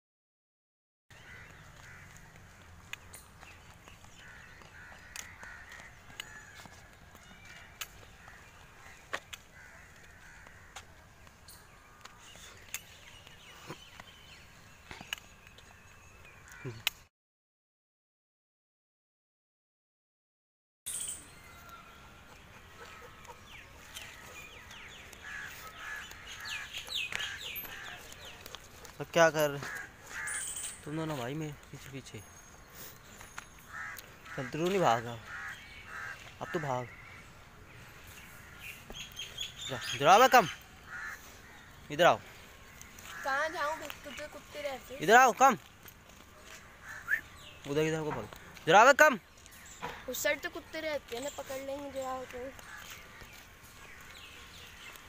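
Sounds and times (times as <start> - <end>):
crows cawing: 1.1 - 3.5, 4.1 - 12.7, 16.3 - 16.8, 22.6 - 30.9, 33.6 - 45.3, 46.1 - 50.2, 52.2 - 55.0
birds calling: 1.1 - 17.1, 20.9 - 55.0.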